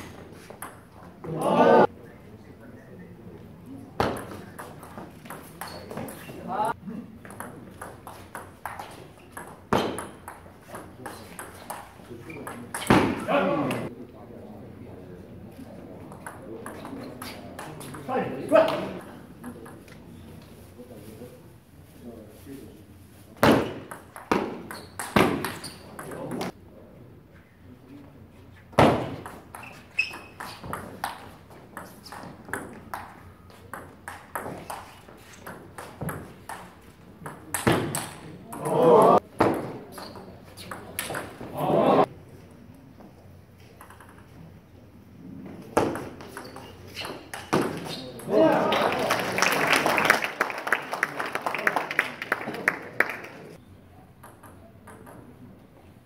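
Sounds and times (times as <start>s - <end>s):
ball bouncing on table: 4.0s - 6.2s, 7.2s - 13.8s, 23.4s - 26.5s, 28.8s - 38.8s, 43.8s - 44.3s, 54.2s - 55.2s
ping pong ball clicking off paddles: 7.2s - 13.0s, 29.2s - 38.8s, 43.8s - 44.3s
crowd chatter: 38.1s - 39.3s, 41.3s - 43.0s.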